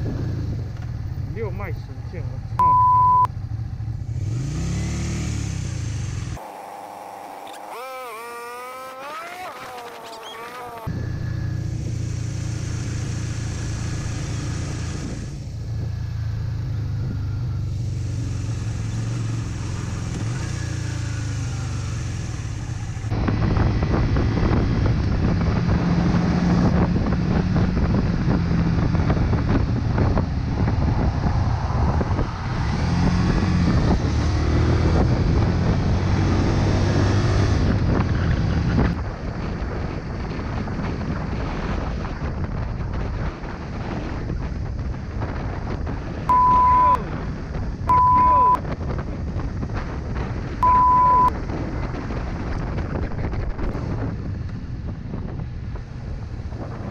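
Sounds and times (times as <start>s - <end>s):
motorcycle engine running: 3.3s - 31.2s
wind on microphone: 6.3s - 56.9s.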